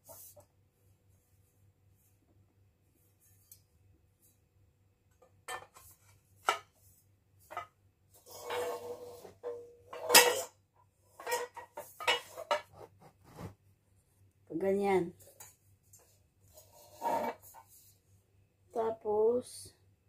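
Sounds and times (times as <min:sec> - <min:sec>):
metal scraping clatter: 0:08.2 - 0:12.8, 0:16.5 - 0:17.6.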